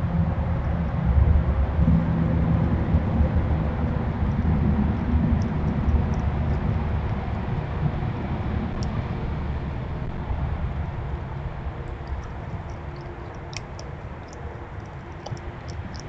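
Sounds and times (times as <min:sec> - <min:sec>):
low outdoor rumble: 0:00.0 - 0:16.0
faint sharp clicks: 0:05.4 - 0:07.2, 0:11.9 - 0:16.0.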